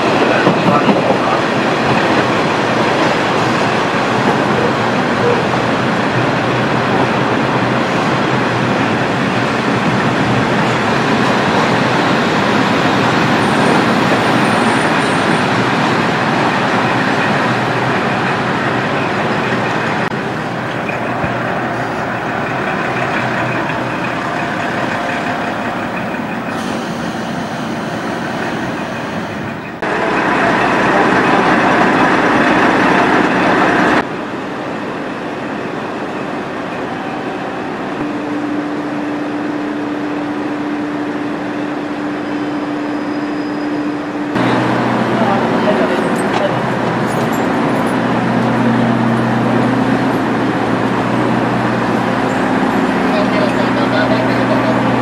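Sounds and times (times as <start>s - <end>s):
wheels on rails: 0.0s - 34.0s
diesel railcar engine drone: 0.0s - 55.0s.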